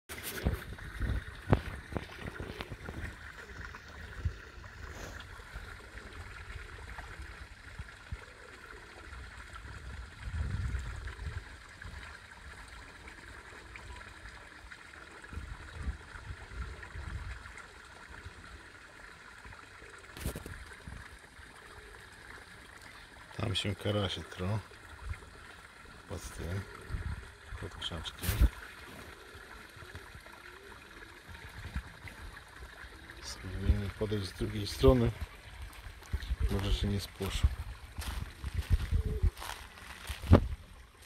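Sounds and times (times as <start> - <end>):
water trickling in pond: 0.1 - 41.0
wind rumble on microphone: 0.3 - 3.2, 9.6 - 12.1, 15.3 - 17.5, 26.8 - 28.6, 37.3 - 40.7.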